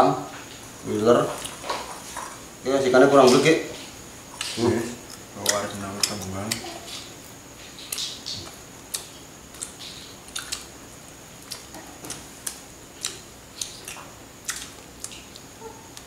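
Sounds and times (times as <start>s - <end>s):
chewing: 3.8s - 10.8s, 11.4s - 16.0s
bones clicking and crackling: 4.4s - 10.8s, 11.4s - 16.0s.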